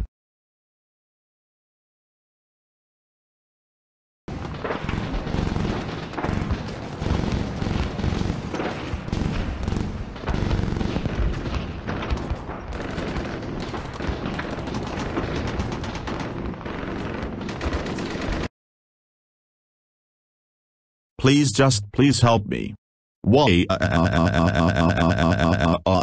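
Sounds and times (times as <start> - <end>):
automatic gunfire: 4.3 - 18.5.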